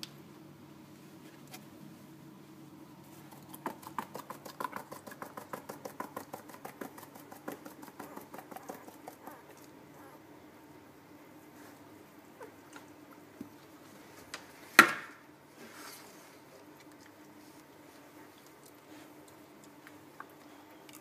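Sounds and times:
puppies clicking and squeaking: 0:07.8 - 0:09.7.

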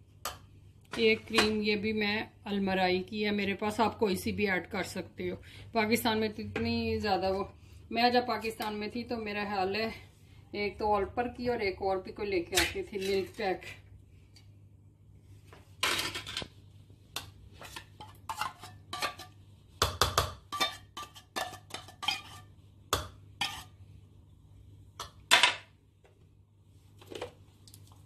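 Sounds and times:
cutlery clinking and scraping: 0:15.8 - 0:16.5, 0:17.6 - 0:19.4, 0:20.5 - 0:22.5.

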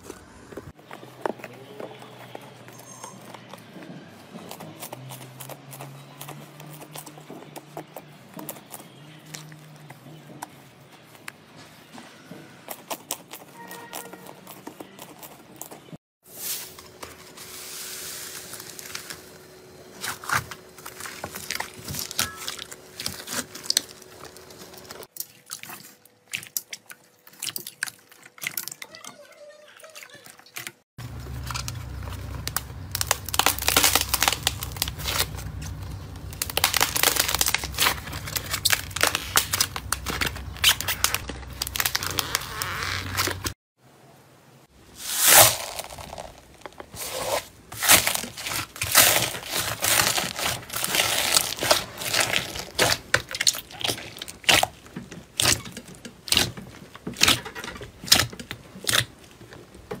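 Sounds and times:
slime crackling and squishing: 0:12.6 - 0:43.6, 0:45.0 - 1:00.0
foam bead slime crunching: 0:31.0 - 0:43.6, 0:45.0 - 0:59.2.

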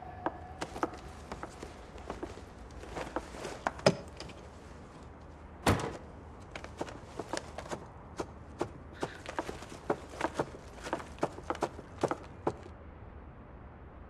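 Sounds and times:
door shutting: 0:05.6 - 0:06.1.

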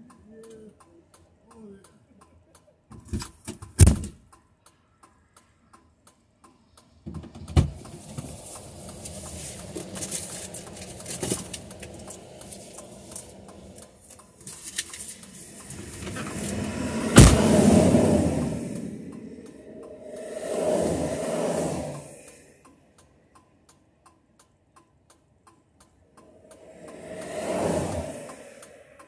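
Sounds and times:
highway traffic: 0:04.7 - 0:29.0
car passing: 0:07.7 - 0:22.6, 0:26.0 - 0:29.0
sharp knocks: 0:15.7 - 0:19.6.

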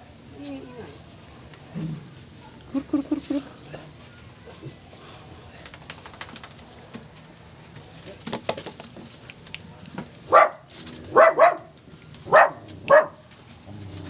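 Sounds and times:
dogs barking: 0:10.3 - 0:13.2.

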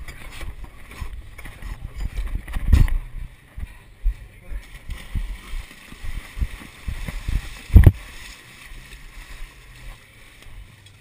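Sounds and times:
camera jolting thumps and rustling: 0:00.0 - 0:03.1
wind hiss on microphone: 0:06.1 - 0:08.1.

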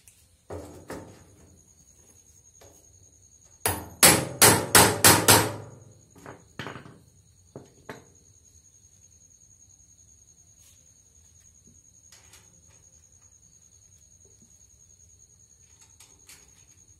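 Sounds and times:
hammer ringing on metal: 0:03.7 - 0:05.8.

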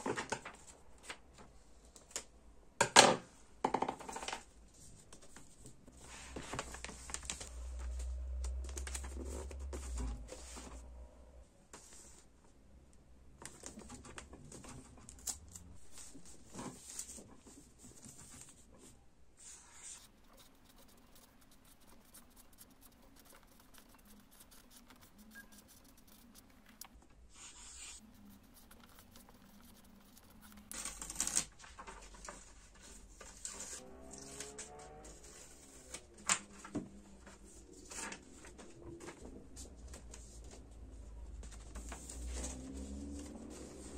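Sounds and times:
paper pages rustling: 0:05.0 - 0:10.8, 0:13.4 - 0:18.6, 0:19.4 - 0:40.6
marker writing on paper: 0:19.4 - 0:30.8.

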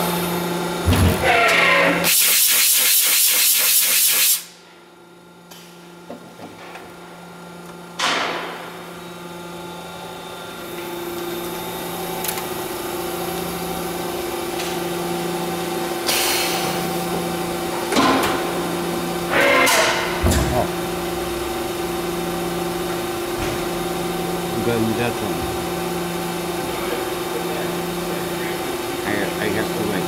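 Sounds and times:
loud hiss: 0:02.1 - 0:04.5.

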